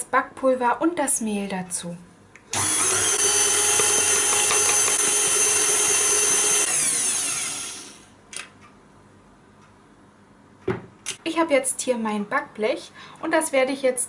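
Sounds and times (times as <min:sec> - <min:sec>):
stand mixer whining: 0:02.6 - 0:08.1.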